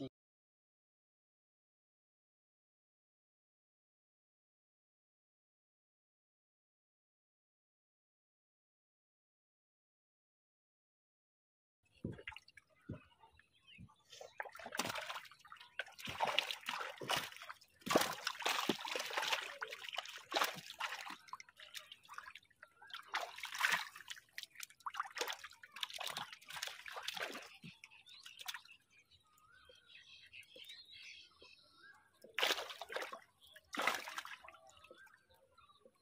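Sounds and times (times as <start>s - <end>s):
water splashing and dripping: 12.0s - 28.7s, 32.2s - 35.4s.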